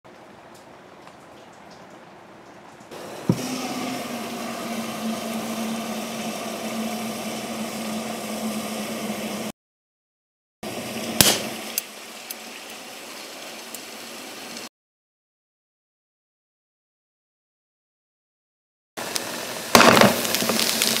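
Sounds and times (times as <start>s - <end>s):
liquid nitrogen hissing and bubbling: 2.6s - 9.5s, 10.6s - 14.7s, 19.0s - 21.0s
low hum: 3.0s - 9.5s
debris ticking: 19.8s - 21.0s.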